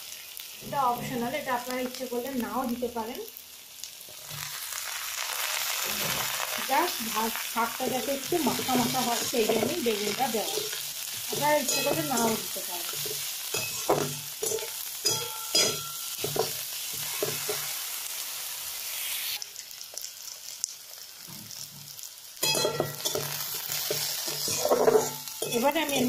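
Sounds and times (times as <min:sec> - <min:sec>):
vegetables sizzling in hot oil: 0:00.0 - 0:26.0
spatula scraping a pan: 0:07.8 - 0:18.0, 0:22.4 - 0:26.0.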